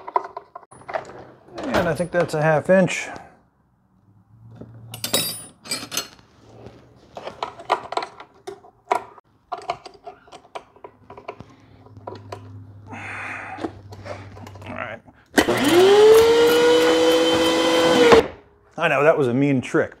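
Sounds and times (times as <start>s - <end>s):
metal tools clicking and clinking: 4.9s - 6.2s.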